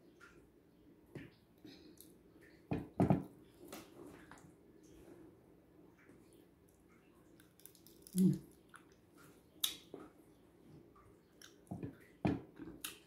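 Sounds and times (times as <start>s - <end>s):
wet mouth clicks and smacks: 7.4s - 9.0s, 9.6s - 10.0s.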